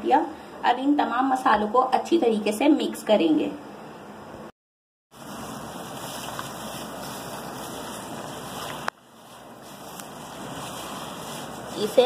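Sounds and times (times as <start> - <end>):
plastic glove rustling: 5.1 - 12.0
meat squishing in marinade: 5.2 - 12.0.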